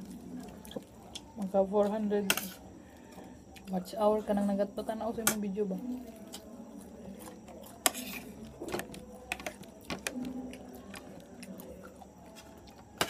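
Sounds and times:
cutlery and dishes clinking: 0:02.3 - 0:02.6.

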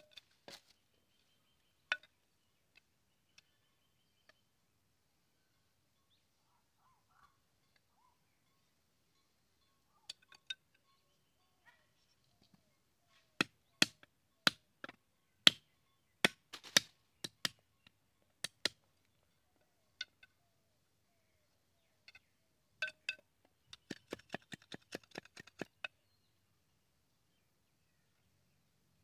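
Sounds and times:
machete chopping bamboo: 0:13.4 - 0:15.6, 0:16.2 - 0:17.6, 0:23.8 - 0:25.8.

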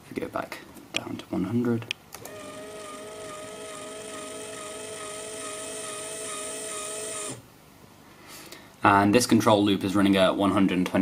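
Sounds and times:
electric motor whine: 0:02.3 - 0:07.4.

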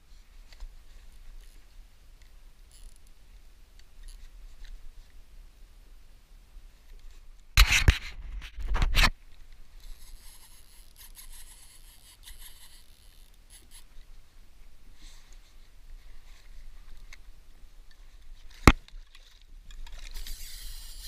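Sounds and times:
plastic fishing reel ticking: 0:02.7 - 0:03.1, 0:10.1 - 0:13.8, 0:19.8 - 0:21.0.

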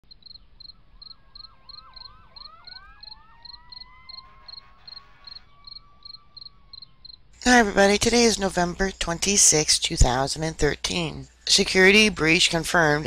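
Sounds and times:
crickets chirping: 0:00.0 - 0:07.5
faint sirens wailing: 0:00.2 - 0:07.4.

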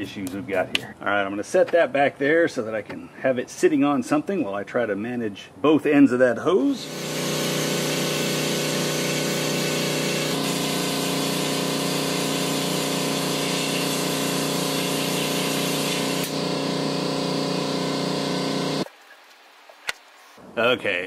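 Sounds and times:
blasting gun spraying hiss: 0:06.8 - 0:18.9
steady hum: 0:06.8 - 0:18.9.

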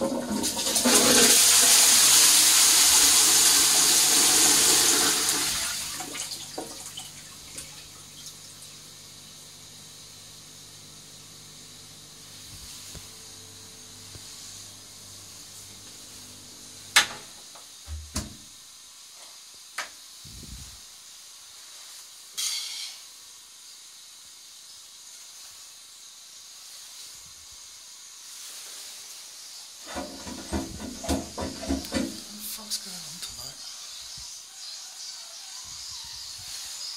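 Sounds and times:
clanking and water noise: 0:00.0 - 0:08.4, 0:16.9 - 0:18.4, 0:29.8 - 0:32.4
toilet cistern refilling: 0:00.0 - 0:08.6, 0:29.8 - 0:32.2
sharp knocks: 0:29.9 - 0:32.2.

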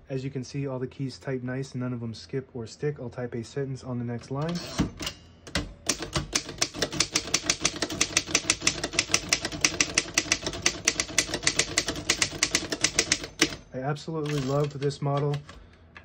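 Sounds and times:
manual typewriter keystrokes: 0:04.7 - 0:15.6.

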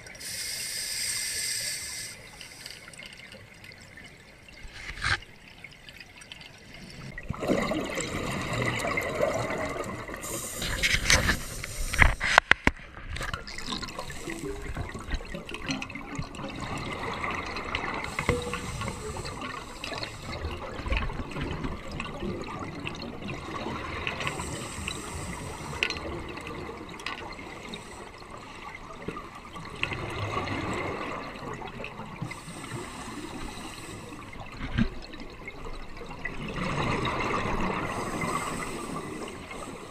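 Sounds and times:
bubbles gurgling underwater: 0:06.8 - 0:10.2, 0:13.2 - 0:33.1, 0:33.9 - 0:39.7.

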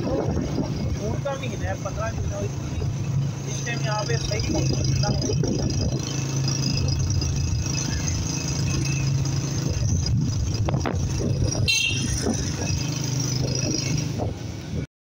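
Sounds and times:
motorcycle engine running: 0:00.0 - 0:14.8
short high-pitched horn beep: 0:11.7 - 0:12.2.

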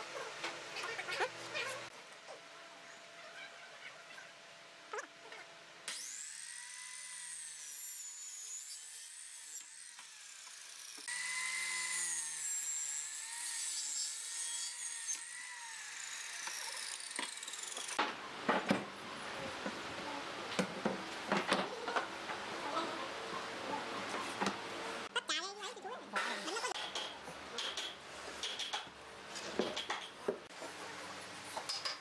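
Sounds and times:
miter saw cutting plywood: 0:05.9 - 0:18.0.

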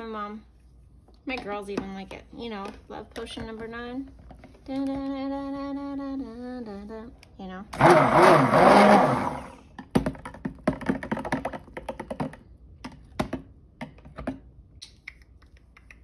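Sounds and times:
stick blender running: 0:07.7 - 0:09.6.

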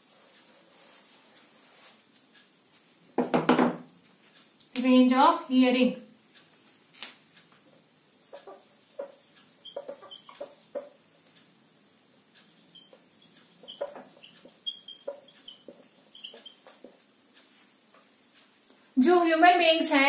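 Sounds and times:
marker squeaking on whiteboard: 0:08.3 - 0:11.0, 0:12.4 - 0:17.0.

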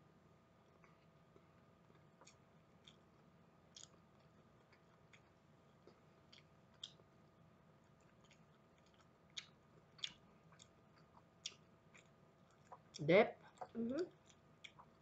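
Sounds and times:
chewing fried chicken: 0:00.6 - 0:15.0.

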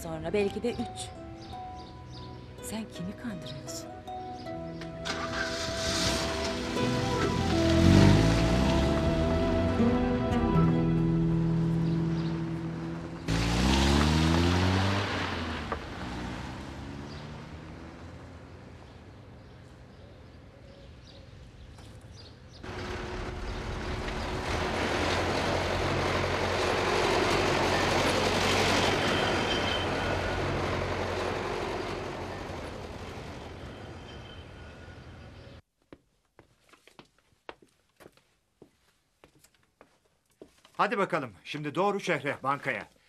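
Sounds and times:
vehicle running noise: 0:04.7 - 0:35.6
car engine accelerating: 0:05.0 - 0:19.1, 0:22.6 - 0:33.6.

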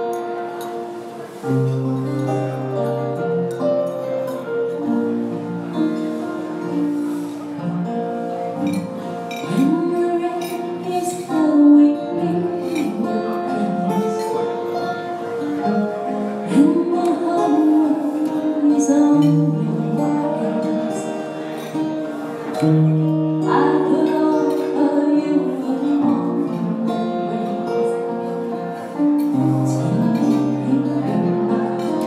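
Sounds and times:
band playing slow ballad: 0:00.0 - 0:32.0
person singing: 0:09.4 - 0:15.0, 0:16.4 - 0:21.6, 0:22.6 - 0:28.8, 0:29.4 - 0:32.0.

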